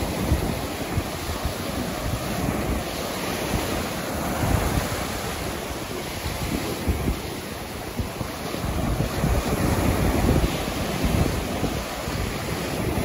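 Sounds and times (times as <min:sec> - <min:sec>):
surf breaking and washing on sand: 0:00.0 - 0:13.0
wind buffeting microphone: 0:00.0 - 0:13.0.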